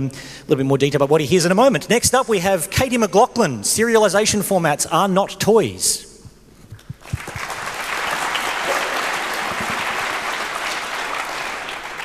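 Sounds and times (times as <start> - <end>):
audience applauding: 7.0 - 12.0.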